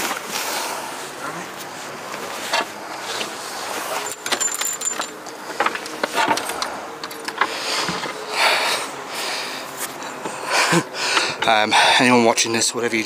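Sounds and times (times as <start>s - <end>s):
clothing and gear rustling: 0.0s - 8.6s
city traffic hum: 0.0s - 13.0s
small clicks and clinks: 3.9s - 8.2s.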